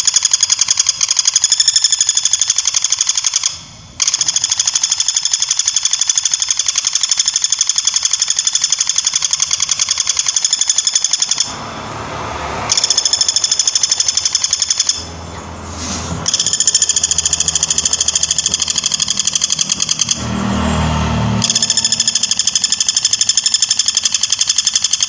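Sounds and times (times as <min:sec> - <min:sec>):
woodpecker rattling call: 0:00.0 - 0:11.5, 0:16.3 - 0:20.2, 0:21.4 - 0:25.0.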